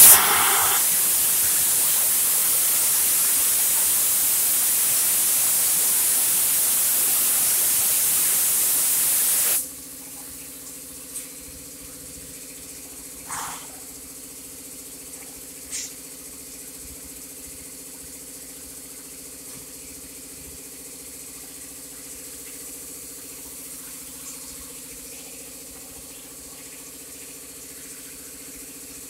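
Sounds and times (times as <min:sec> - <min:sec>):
spray gun hissing: 0:00.0 - 0:09.6.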